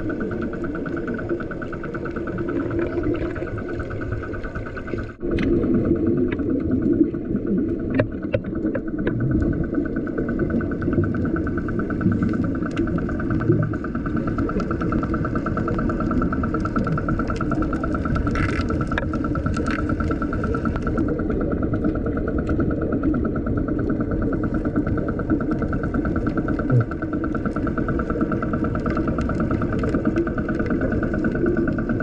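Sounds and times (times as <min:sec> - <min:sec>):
muffled boat engine drone underwater: 0:00.0 - 0:32.0.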